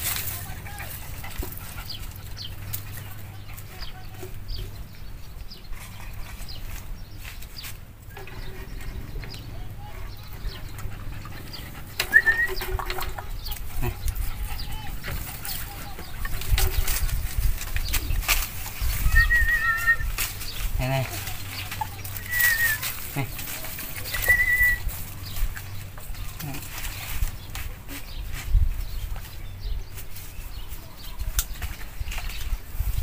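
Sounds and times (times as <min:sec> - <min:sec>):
clicks and scrapes of grill grate: 0:15.0 - 0:28.5.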